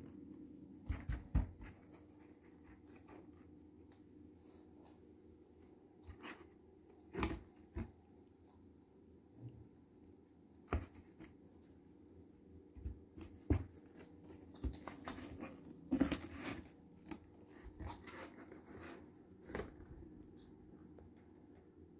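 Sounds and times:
cardboard scraping and rustling: 0:12.8 - 0:19.9.

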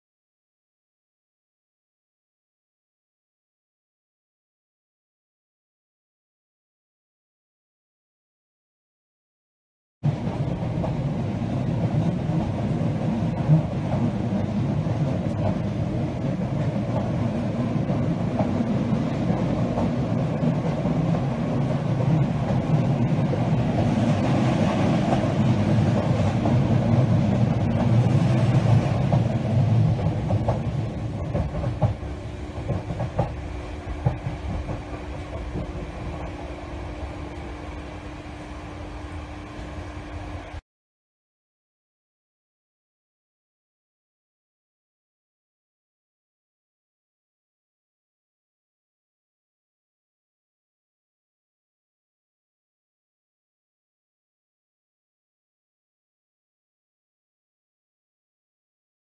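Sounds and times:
train wheels rumbling on rails: 0:10.0 - 0:40.6
rail-joint clicks: 0:12.0 - 0:38.1.

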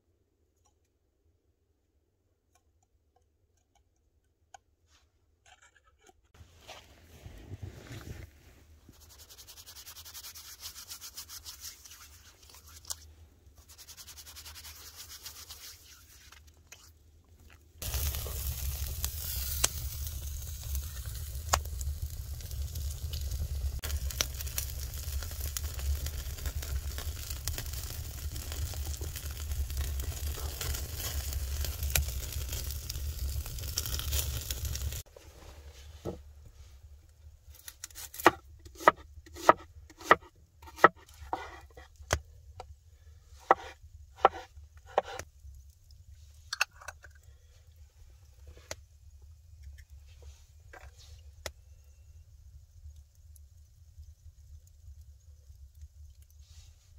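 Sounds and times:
wood fire burning and popping: 0:17.8 - 0:35.1.

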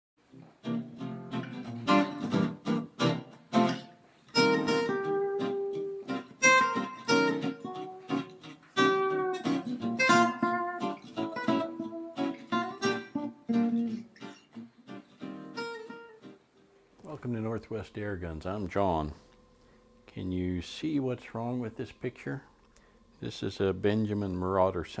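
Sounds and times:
guitar strumming and picking: 0:00.3 - 0:17.0.

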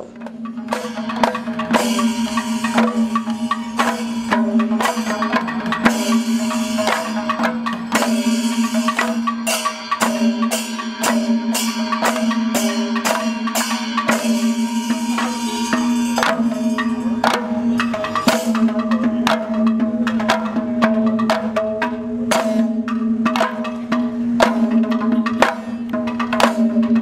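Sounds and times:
steady drone: 0:00.0 - 0:21.2
quick percussion strikes: 0:00.0 - 0:27.0.

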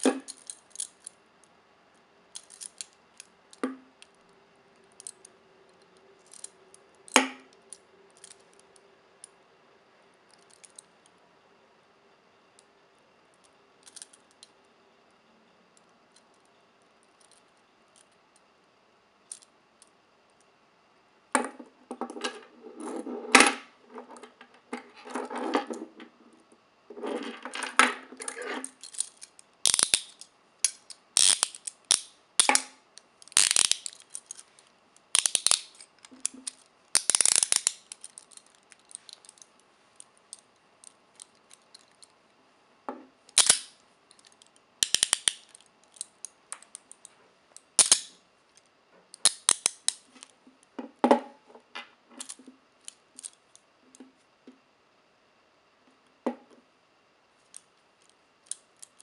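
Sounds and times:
handcuffs ratcheting clicks: 0:00.3 - 0:01.2, 0:02.4 - 0:03.3, 0:06.3 - 0:06.5, 0:10.3 - 0:10.9, 0:13.8 - 0:14.5, 0:28.7 - 0:34.4, 0:35.1 - 0:39.5, 0:40.3 - 0:42.1, 0:43.3 - 0:47.1, 0:47.8 - 0:50.3, 0:52.2 - 0:53.4.

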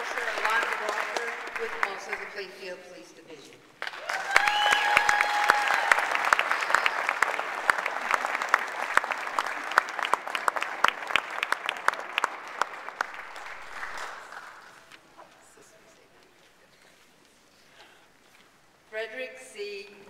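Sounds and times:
audience applauding: 0:00.0 - 0:02.4, 0:03.8 - 0:15.0.

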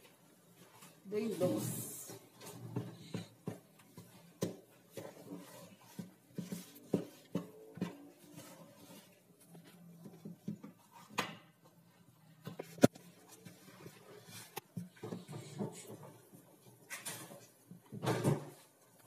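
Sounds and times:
hands kneading sticky dough: 0:00.0 - 0:19.0.

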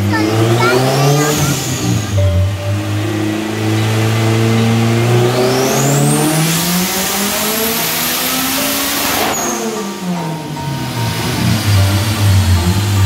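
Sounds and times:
car engine revving at full throttle: 0:00.0 - 0:13.0
high whine: 0:01.3 - 0:05.2, 0:07.8 - 0:13.0.

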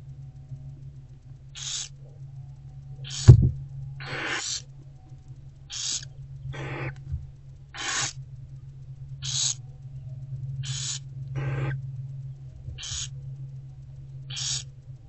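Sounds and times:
owlets hissing: 0:01.6 - 0:02.0, 0:03.0 - 0:04.7, 0:05.7 - 0:07.1, 0:07.7 - 0:08.2, 0:09.2 - 0:09.6, 0:10.6 - 0:11.8, 0:12.8 - 0:13.2, 0:14.3 - 0:14.7
loud thump: 0:03.2 - 0:03.6.

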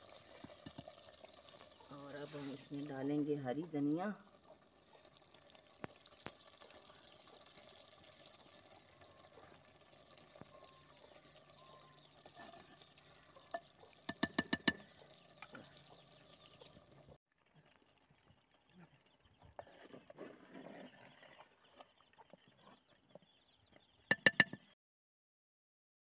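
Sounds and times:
curry simmering in a pot: 0:00.0 - 0:19.9
wooden spoon knocking on clay pot: 0:13.5 - 0:15.0, 0:24.1 - 0:24.8.

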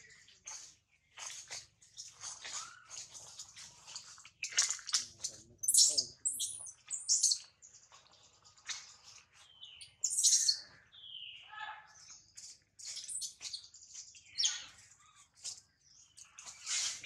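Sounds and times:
baby monkey shrill cries: 0:10.0 - 0:10.6.

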